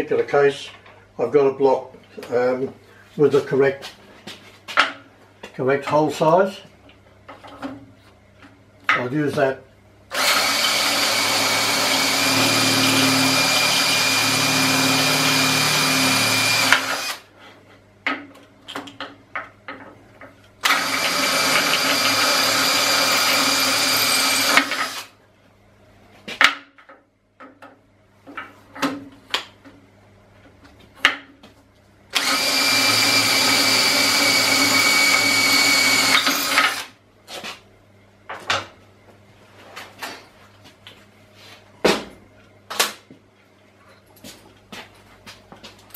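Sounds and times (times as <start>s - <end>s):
electric drill boring metal: 10.1s - 17.2s, 20.6s - 25.1s, 32.2s - 36.9s.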